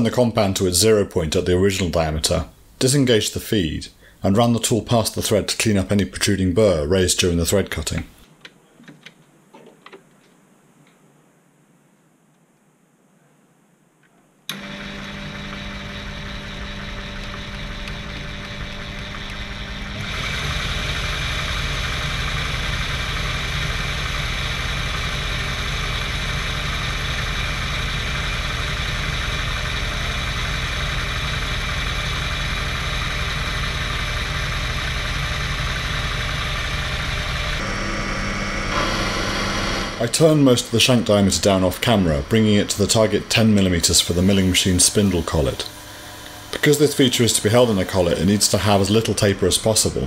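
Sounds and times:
mini lathe motor whine: 0:14.5 - 0:50.0.

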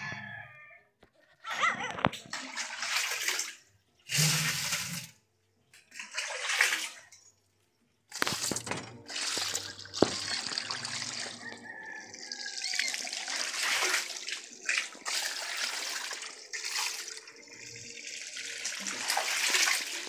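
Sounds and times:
hose water splashing on corn: 0:02.3 - 0:05.2, 0:08.1 - 0:20.0.

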